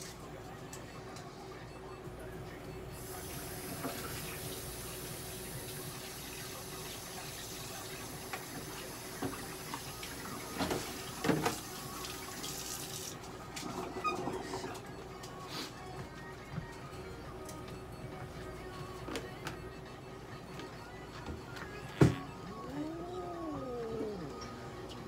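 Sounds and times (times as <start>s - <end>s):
running water hissing: 3.0s - 13.2s.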